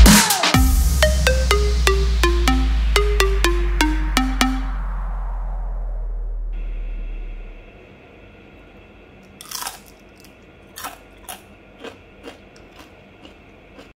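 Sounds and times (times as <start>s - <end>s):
background music: 0.0s - 4.8s
crispy food crunching: 9.3s - 13.9s.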